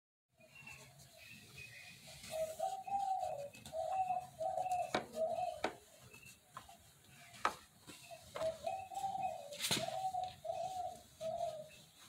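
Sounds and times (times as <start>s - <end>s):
dove cooing: 1.9s - 5.9s, 8.0s - 12.0s.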